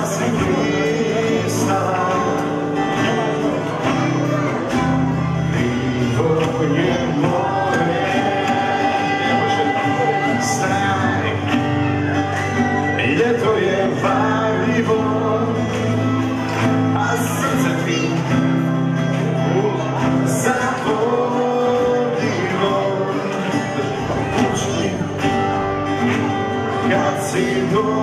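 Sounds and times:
classical guitars playing: 0.0s - 28.0s
children singing: 5.5s - 11.4s.

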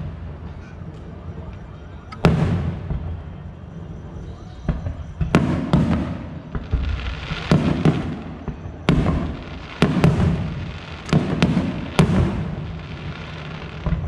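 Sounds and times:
firework bangs with echo: 2.2s - 3.3s, 4.6s - 14.0s.

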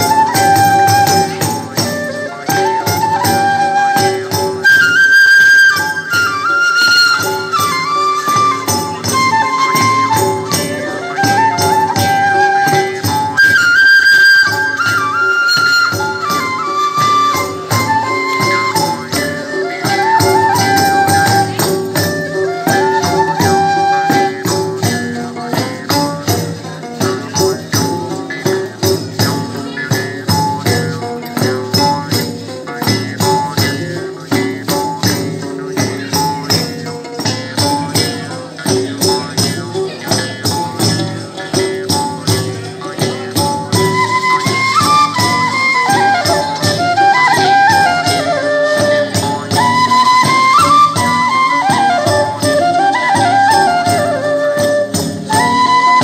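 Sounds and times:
frame drums beating: 0.0s - 56.0s
wind instrument melody: 0.0s - 56.0s.

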